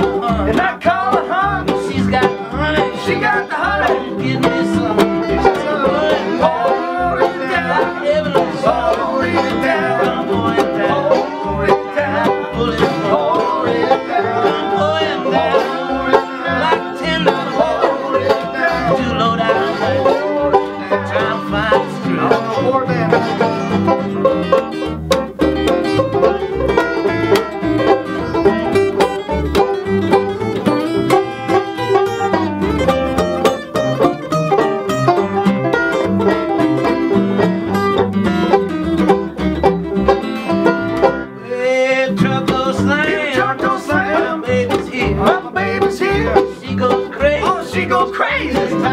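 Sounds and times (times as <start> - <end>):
banjo picking: 0.0 - 48.9
plucked upright bass: 0.0 - 48.9
strummed acoustic guitar: 0.0 - 48.9.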